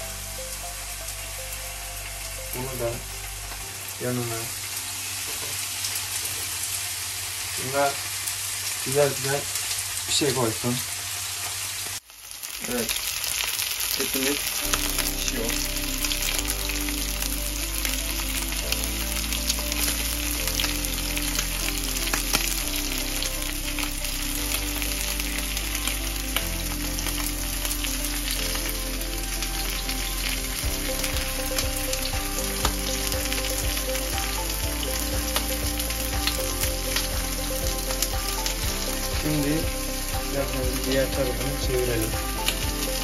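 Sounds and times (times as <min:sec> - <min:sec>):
steaks sizzling in a pan: 0:00.1 - 0:43.0.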